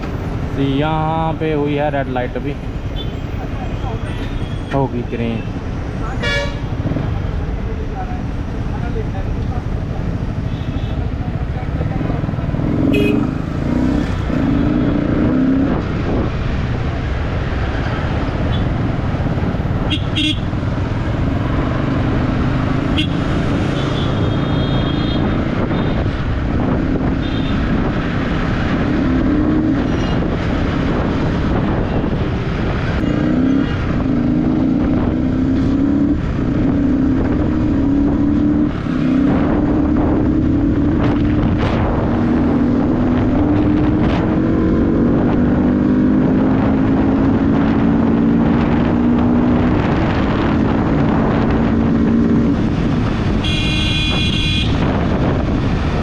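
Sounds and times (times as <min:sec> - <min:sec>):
traffic noise: 0:00.0 - 0:56.0
vehicle horns tooting: 0:06.2 - 0:06.8, 0:12.9 - 0:13.3, 0:19.8 - 0:20.5, 0:22.9 - 0:26.0, 0:53.4 - 0:54.9
motorcycle engine accelerating: 0:11.7 - 0:16.6, 0:20.5 - 0:24.6, 0:27.8 - 0:53.5.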